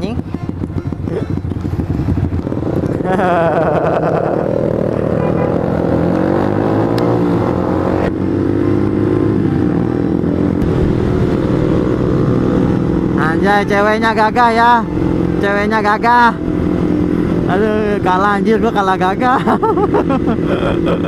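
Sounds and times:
motorcycle engine pulling away: 0.1s - 13.2s.

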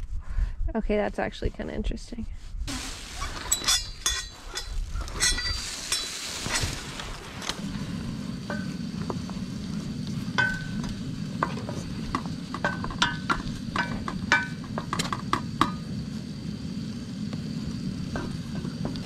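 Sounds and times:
potatoes sizzling in a pan: 2.7s - 19.0s
wooden spoon knocking on pan: 10.4s - 15.8s.

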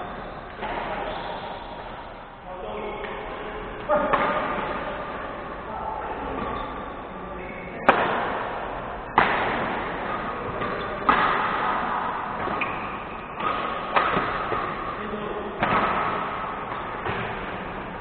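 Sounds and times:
rackets hitting shuttlecock: 0.1s - 1.1s, 3.8s - 5.6s, 7.8s - 18.0s.

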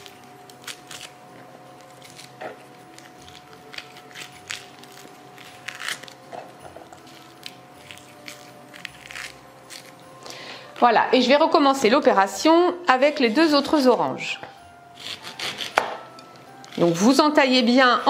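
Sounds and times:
orange peel tearing: 0.0s - 10.8s.

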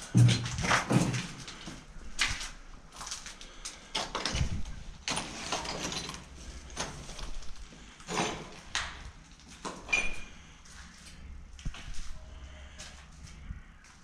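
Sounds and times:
footsteps scuffing on gritty floor: 0.0s - 3.4s.

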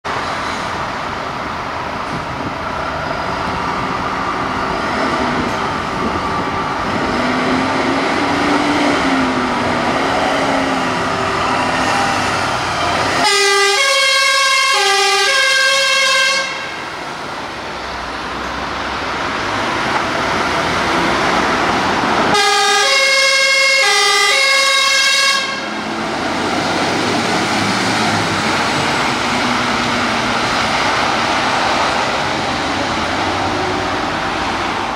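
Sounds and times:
fire engine diesel engines: 0.0s - 34.9s
two-tone siren: 13.2s - 16.8s, 22.4s - 25.7s.

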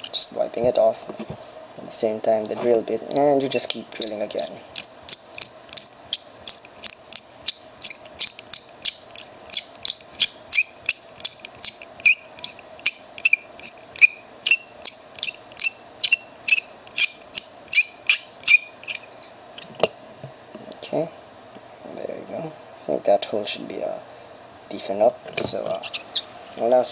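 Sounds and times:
faint steady hum: 0.0s - 26.9s
drill bit squeaking in plastic: 3.7s - 19.8s, 25.4s - 26.3s.

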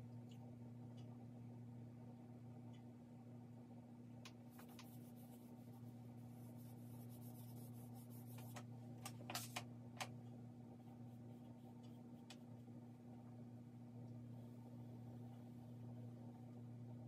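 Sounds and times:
low hum: 0.0s - 17.0s
charcoal scratching on paper: 4.5s - 8.6s.

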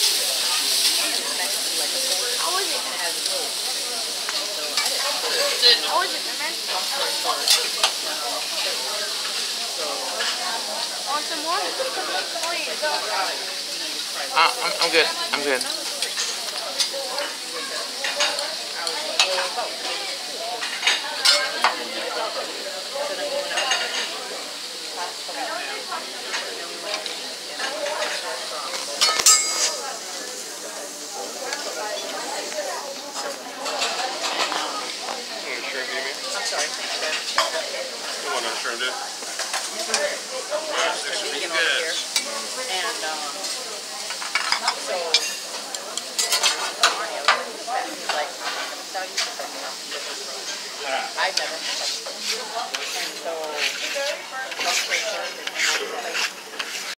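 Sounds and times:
chicken sizzling on a griddle: 0.0s - 56.9s
spatula clinking on steel plate: 20.6s - 21.5s, 29.0s - 29.8s, 44.1s - 47.4s
metal utensils scraping steel: 27.6s - 29.9s, 43.4s - 47.0s, 51.4s - 56.9s.

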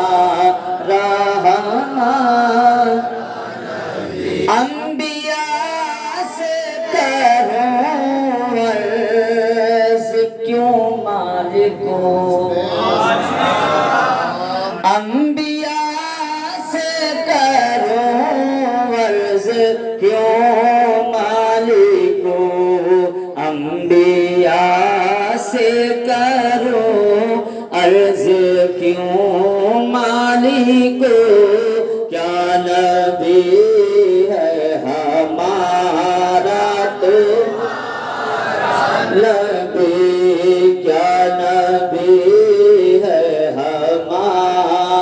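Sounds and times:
man singing into a microphone: 0.0s - 3.2s, 4.1s - 12.6s, 14.8s - 37.6s, 39.1s - 45.0s
singer breathing: 27.4s - 27.7s.

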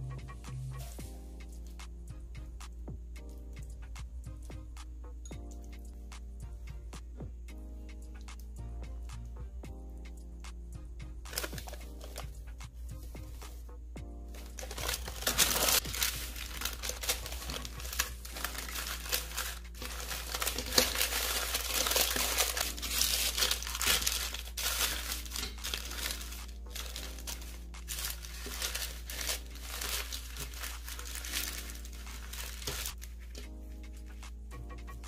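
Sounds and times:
parchment paper crinkling: 11.3s - 12.4s, 14.3s - 34.2s
cloth rustling: 11.3s - 13.7s, 14.3s - 34.2s.

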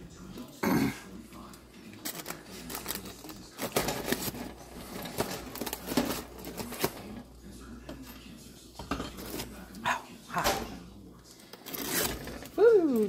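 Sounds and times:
popcorn popping in foil: 1.4s - 7.3s, 11.5s - 13.0s.

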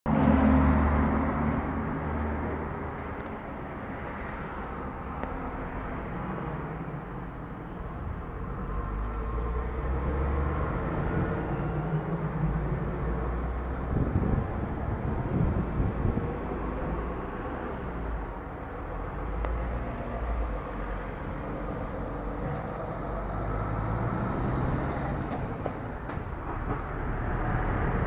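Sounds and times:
car engines passing: 0.1s - 28.0s.

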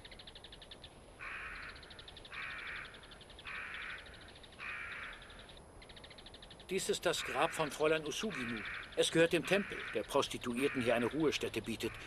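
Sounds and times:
crow cawing: 1.2s - 5.5s, 7.0s - 12.0s.

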